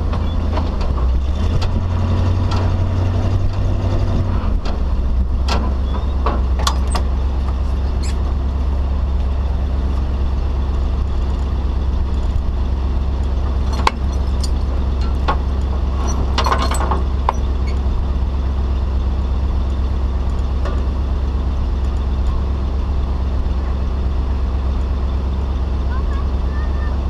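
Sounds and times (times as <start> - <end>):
tow truck engine idling: 0.0 - 27.0
metallic clanks of hook gear: 6.6 - 7.1, 13.6 - 15.3, 16.0 - 17.8.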